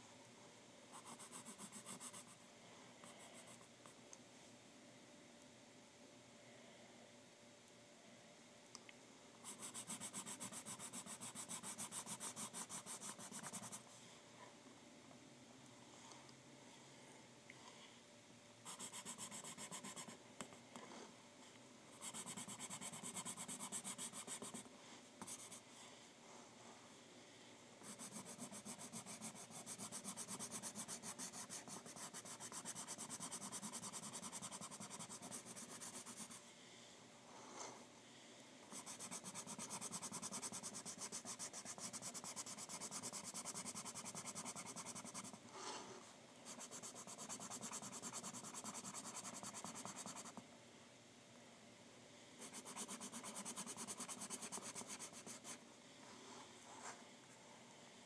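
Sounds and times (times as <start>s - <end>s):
pencil sketching on paper: 0.9s - 2.4s, 9.4s - 13.8s, 18.7s - 20.2s, 22.0s - 25.6s, 27.8s - 36.4s, 38.7s - 45.4s, 46.5s - 50.4s, 52.4s - 55.6s.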